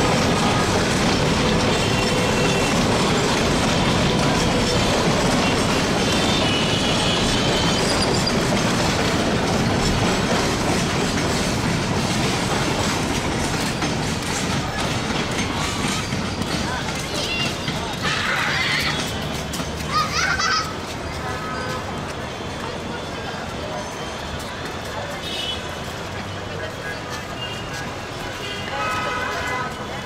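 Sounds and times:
train wheels rumbling on track: 0:00.0 - 0:30.0
high wheel squeal: 0:01.6 - 0:08.6.

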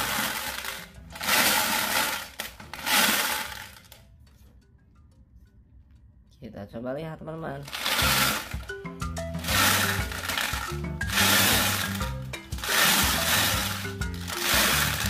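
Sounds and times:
marbles rattling in plastic drum: 0:00.0 - 0:04.0, 0:07.6 - 0:15.0
background music simple tune: 0:00.0 - 0:06.8, 0:07.4 - 0:15.0.

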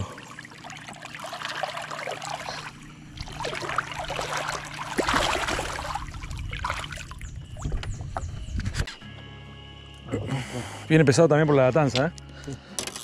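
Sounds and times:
water splashing and sloshing: 0:00.0 - 0:08.9
hand swishing through water: 0:01.4 - 0:07.0.

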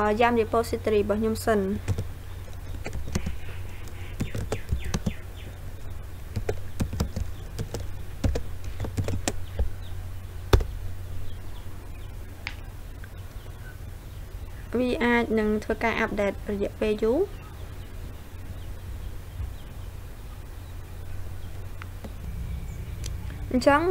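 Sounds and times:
steady low hum: 0:00.0 - 0:23.9
keyboard keys clicking: 0:01.9 - 0:05.2, 0:06.3 - 0:09.7.

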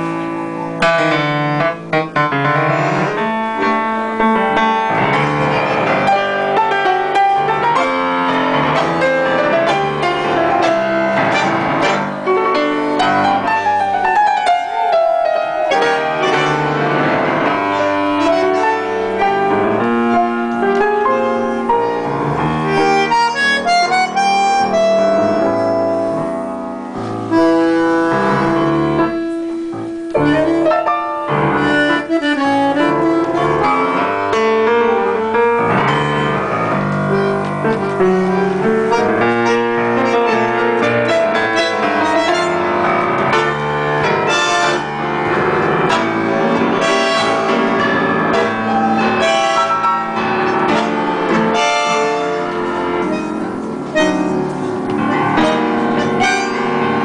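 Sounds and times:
bandoneon: 0:00.0 - 0:57.0
piano chords and runs: 0:00.0 - 0:57.0.

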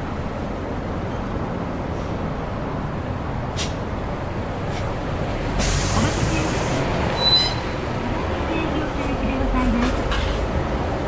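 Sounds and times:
bus engine idling: 0:00.0 - 0:11.0
compressed air hiss: 0:05.6 - 0:06.8.

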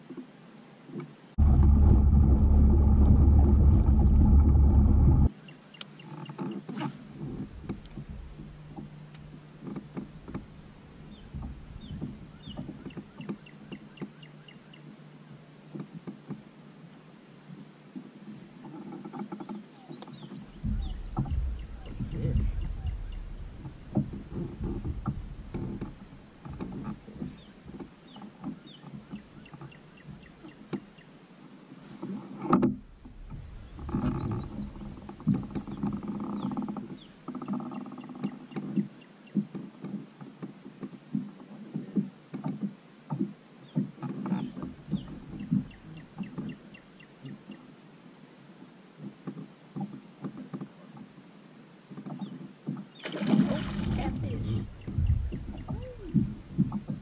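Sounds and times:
knocks and rattles on kayak hull: 0:00.9 - 0:05.3, 0:06.1 - 0:14.2, 0:15.7 - 0:16.5, 0:18.0 - 0:31.0, 0:32.0 - 0:47.6, 0:49.0 - 0:51.2, 0:51.9 - 0:57.0
fish splashing at surface: 0:53.0 - 0:54.8.

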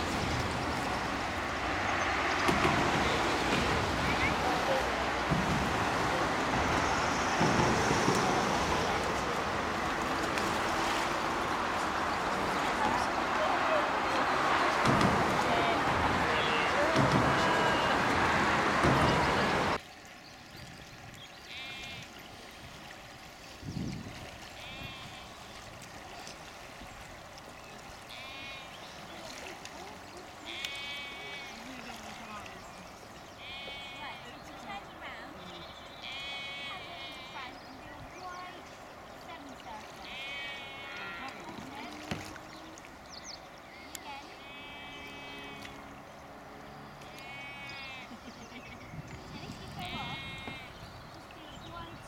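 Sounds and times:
road traffic hum: 0:00.0 - 0:19.8, 0:24.6 - 0:52.0
distant sheep bleating: 0:14.8 - 0:19.8, 0:24.6 - 0:25.4, 0:28.1 - 0:28.8, 0:30.4 - 0:31.7, 0:33.4 - 0:34.3, 0:35.7 - 0:37.5, 0:40.0 - 0:41.4, 0:44.2 - 0:45.9, 0:47.1 - 0:48.2, 0:49.7 - 0:50.8.

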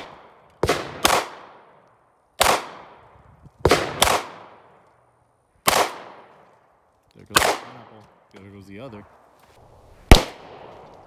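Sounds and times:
pistol shots with echo: 0:00.0 - 0:01.8, 0:02.4 - 0:03.0, 0:03.7 - 0:04.7, 0:05.6 - 0:06.4, 0:07.3 - 0:08.0, 0:10.1 - 0:10.8.

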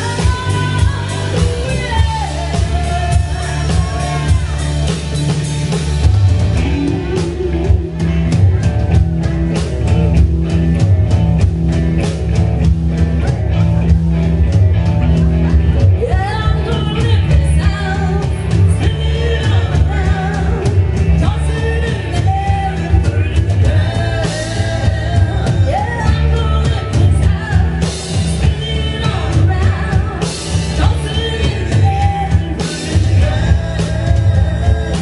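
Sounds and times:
woman singing lead: 0:00.0 - 0:08.9, 0:15.4 - 0:35.0
live rock band playing: 0:00.0 - 0:35.0.

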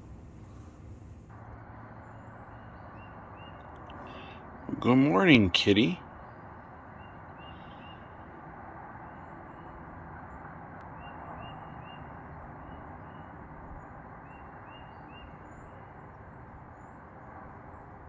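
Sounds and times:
steady background hiss: 0:00.0 - 0:01.3
small birds chirping: 0:02.0 - 0:05.1, 0:05.8 - 0:08.3, 0:09.0 - 0:18.0.

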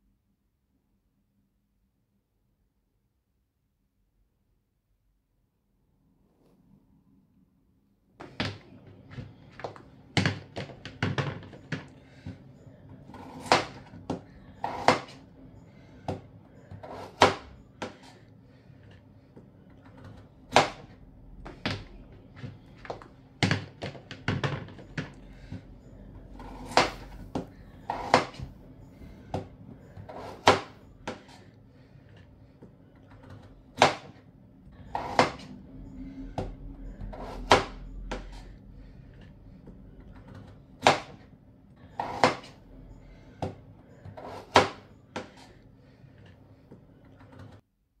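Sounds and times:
faint steady hum: 0:00.0 - 0:48.0.

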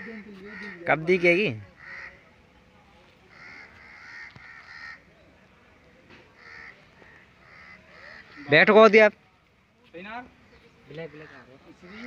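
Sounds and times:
crows cawing: 0:00.0 - 0:02.3, 0:03.2 - 0:05.2, 0:06.3 - 0:08.9, 0:10.5 - 0:12.0.

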